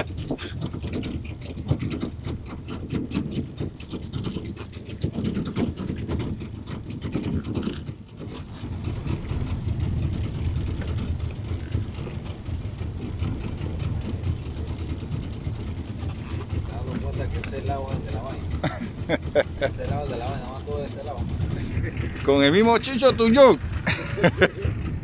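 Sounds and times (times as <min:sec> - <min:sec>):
boat motor rumbling: 0:00.0 - 0:25.0.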